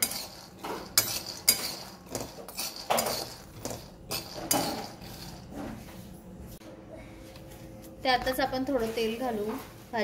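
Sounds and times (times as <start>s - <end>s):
peanuts rattling: 0.0s - 5.5s
metal spatula scraping pan: 0.0s - 5.7s.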